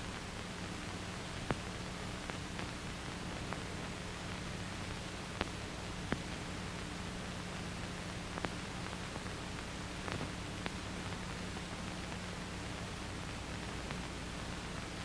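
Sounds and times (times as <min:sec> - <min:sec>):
film soundtrack hiss and hum: 0:00.0 - 0:15.0
faint clicks: 0:01.4 - 0:01.6, 0:04.3 - 0:06.4, 0:08.3 - 0:12.2.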